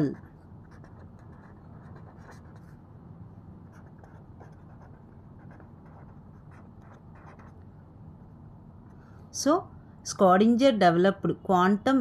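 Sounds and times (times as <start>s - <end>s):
marker pen scratching on paper: 0.0s - 2.8s, 3.6s - 7.7s
steady low hum: 0.0s - 12.0s.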